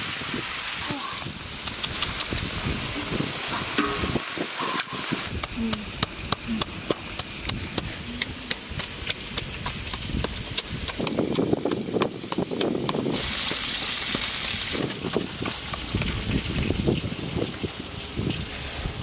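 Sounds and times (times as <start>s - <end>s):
wooden pestle pounding and grinding: 3.8s - 16.4s.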